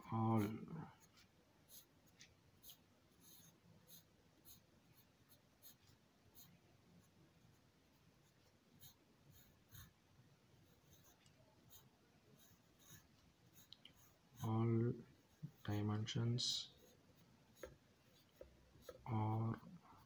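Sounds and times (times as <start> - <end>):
pencil strokes on paper: 0.0 - 10.0, 10.6 - 20.0.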